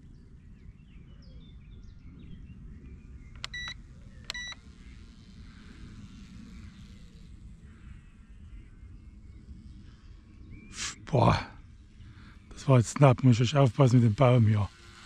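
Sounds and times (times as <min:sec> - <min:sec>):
faint bird chirps: 0:00.0 - 0:13.3
electronic beeps: 0:03.4 - 0:04.6.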